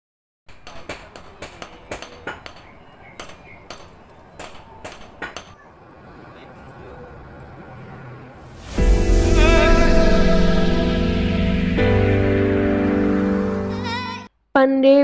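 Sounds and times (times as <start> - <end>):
hammer striking metal: 0.5 - 5.6.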